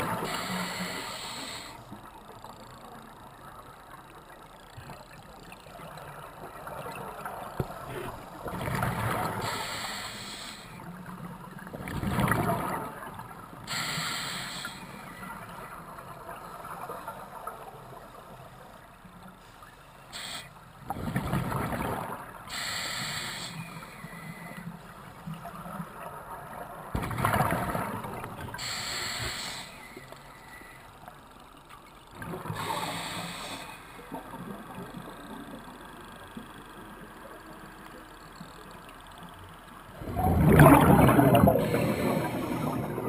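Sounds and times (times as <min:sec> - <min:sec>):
diver breathing through regulator: 0:00.0 - 0:01.8, 0:09.4 - 0:10.8, 0:13.7 - 0:15.0, 0:22.5 - 0:24.6, 0:28.6 - 0:30.8, 0:32.5 - 0:34.1, 0:41.5 - 0:43.0
regulator hissing: 0:28.6 - 0:30.0
exhaled bubbles rushing: 0:40.0 - 0:43.0.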